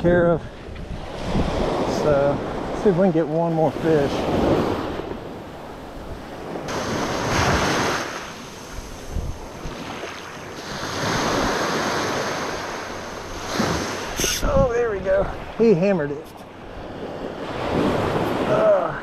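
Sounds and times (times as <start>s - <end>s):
wind buffeting microphone: 0.0s - 18.7s
surf breaking on beach: 6.1s - 15.9s.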